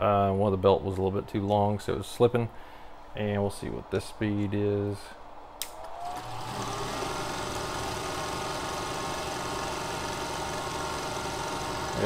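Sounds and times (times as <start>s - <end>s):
lathe motor whining: 5.6s - 12.0s.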